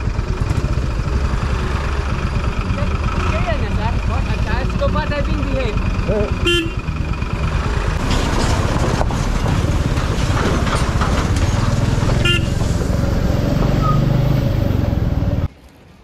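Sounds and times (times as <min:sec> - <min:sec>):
motorcycle engine running: 0:00.0 - 0:10.2, 0:10.8 - 0:15.5
tires on gravel: 0:00.0 - 0:15.6
horn toot: 0:06.1 - 0:06.8, 0:12.2 - 0:12.6.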